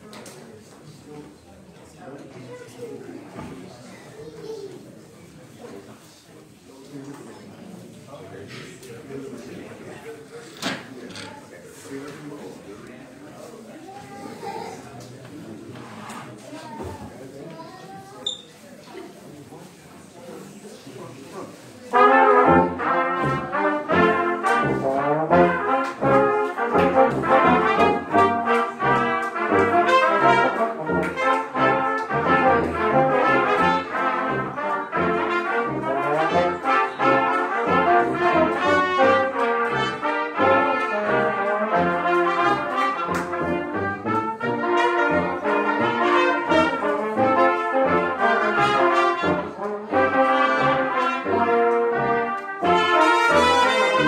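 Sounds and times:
brass ensemble playing: 21.9 - 54.0
tuba bass notes: 21.9 - 54.0.

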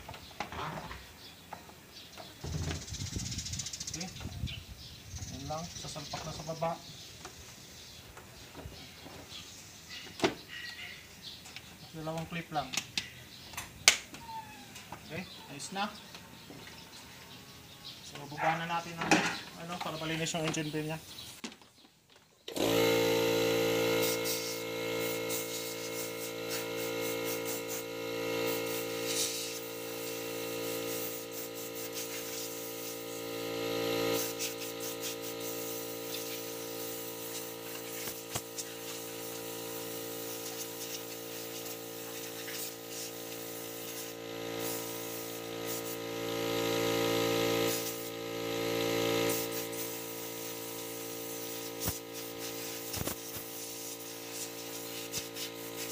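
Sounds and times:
air blow gun hissing: 22.5 - 55.9
air compressor running: 22.5 - 55.9.

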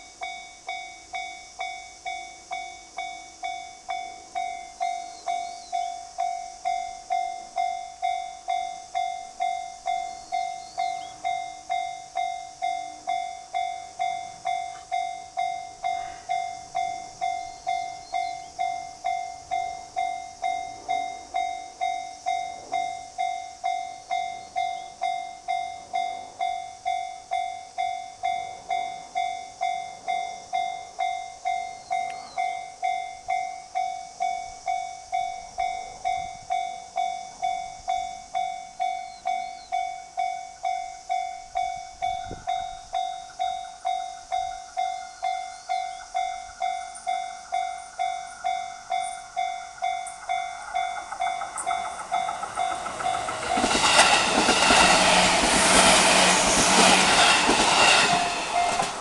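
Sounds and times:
electric train passing: 0.0 - 59.0
level-crossing warning bell ringing: 0.0 - 59.0
train wheels clattering over rail joints: 48.6 - 59.0.

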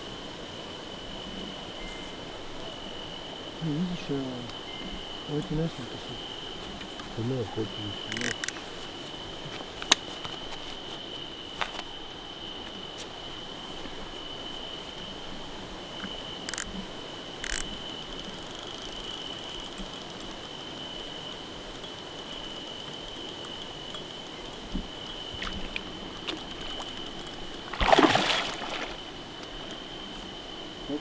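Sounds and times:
high-pitched insect trill: 0.9 - 9.4, 10.1 - 31.0
fishing reel clicks and ticking: 8.1 - 8.6, 16.5 - 16.7, 17.4 - 25.2, 26.2 - 27.6
fish thrashing and splashing: 22.2 - 29.7.

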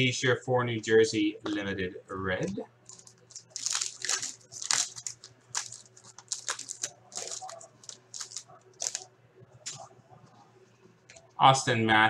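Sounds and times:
plastic wrapper crinkling and tearing: 2.8 - 9.8.

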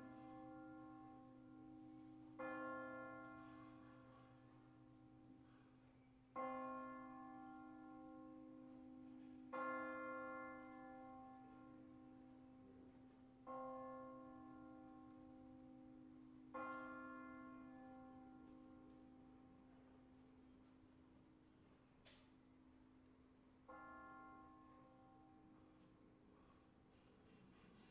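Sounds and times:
church bell striking: 0.0 - 20.1, 23.6 - 25.8.

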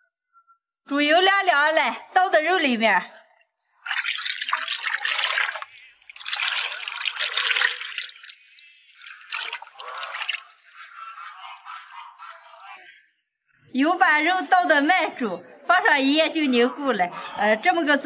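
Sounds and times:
liquid fat pouring and splashing: 3.7 - 10.9.

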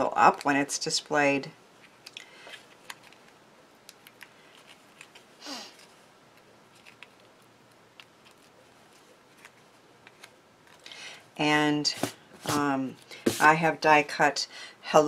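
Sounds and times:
adhesive dots being peeled: 2.0 - 10.9.

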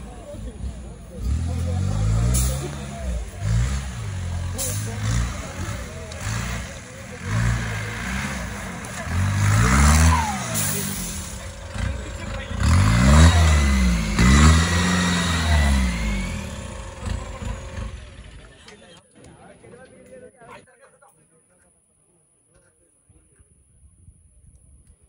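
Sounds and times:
jeep engine revving: 0.0 - 18.6.

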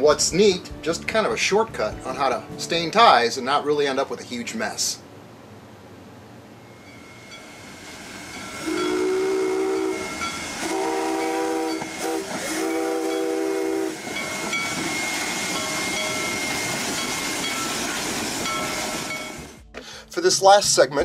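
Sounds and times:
steam whistle blasts: 6.7 - 16.8
steam locomotive hissing and running: 6.7 - 20.0.

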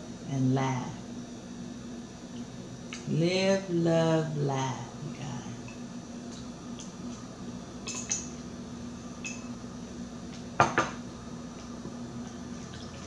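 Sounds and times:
glass knocking on glass tabletop: 10.6 - 11.0.

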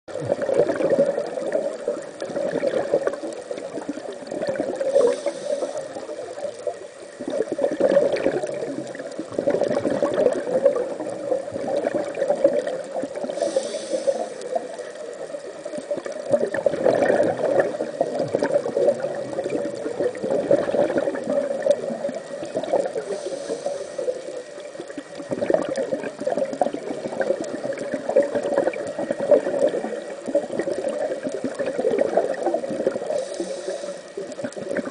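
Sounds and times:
bubbles gurgling underwater: 0.1 - 34.9
regulator inhale hiss: 4.8 - 7.1, 13.2 - 15.2, 22.8 - 24.8, 33.0 - 34.5.

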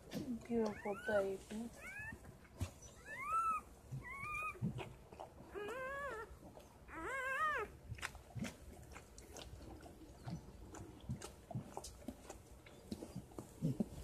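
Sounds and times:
puppy whining: 0.5 - 7.8.

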